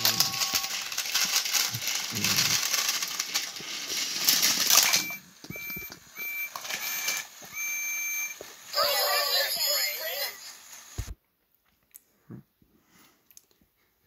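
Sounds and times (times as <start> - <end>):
toy train motors whirring: 0.0 - 11.1.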